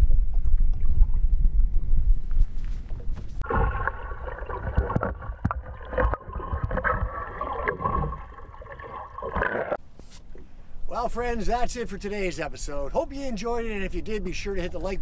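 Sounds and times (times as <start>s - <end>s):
water gurgling underwater: 3.4s - 9.8s.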